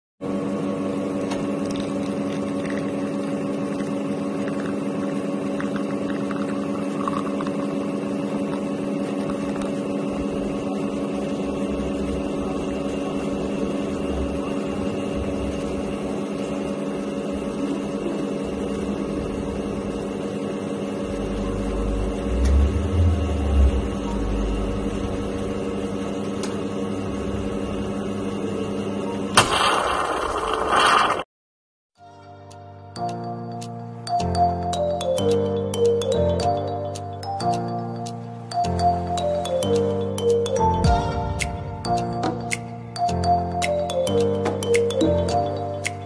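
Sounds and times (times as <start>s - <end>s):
espresso machine pump humming: 0.2s - 29.3s
low rumble: 21.0s - 25.9s.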